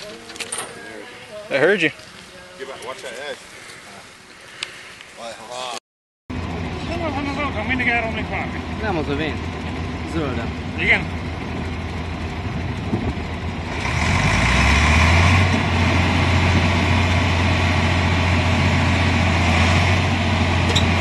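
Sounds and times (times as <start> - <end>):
heavy diesel engine revving: 6.3 - 21.0.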